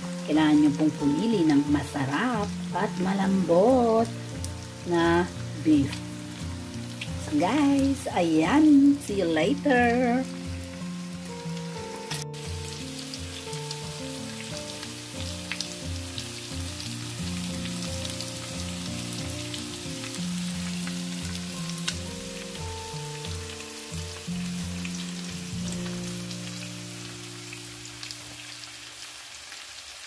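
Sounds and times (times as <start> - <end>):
meat sizzling in a pan: 0.0 - 30.0.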